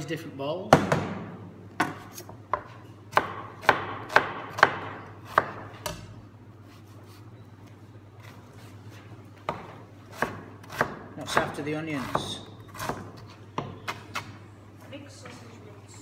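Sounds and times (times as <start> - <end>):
knife chopping on plastic board: 0.7 - 6.1, 9.5 - 14.4.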